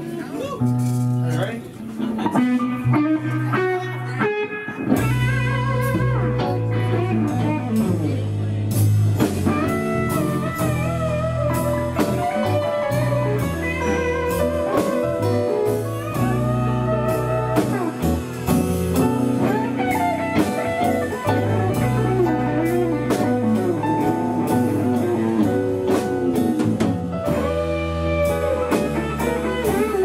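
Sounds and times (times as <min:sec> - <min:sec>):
blues guitar lead: 0:00.0 - 0:30.0
walking bass line: 0:02.2 - 0:30.0
steady drum beat: 0:05.0 - 0:30.0.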